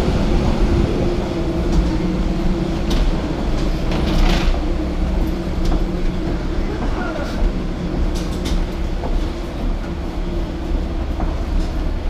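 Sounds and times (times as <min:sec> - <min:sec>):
wheeled suitcase rolling: 0:00.4 - 0:09.9.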